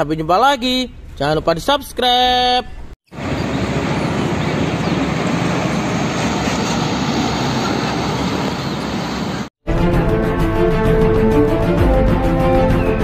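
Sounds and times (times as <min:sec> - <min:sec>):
road and tyre noise: 0:03.1 - 0:09.5
truck diesel engine rumble: 0:03.2 - 0:09.5.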